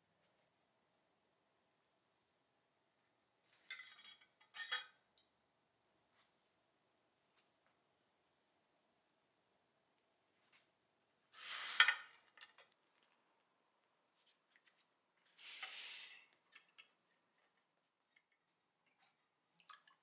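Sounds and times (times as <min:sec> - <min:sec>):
hot metal hissing sizzles: 0:15.4 - 0:16.3.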